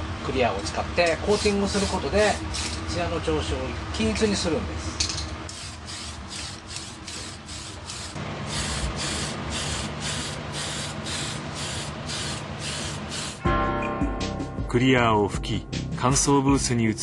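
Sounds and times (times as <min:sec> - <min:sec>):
aerosol spray hissing: 0:05.6 - 0:13.5.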